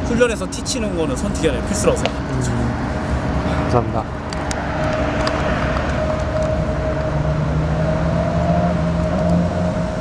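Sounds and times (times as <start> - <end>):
engine-like drone: 0.0 - 10.0
lower hum: 2.2 - 10.0.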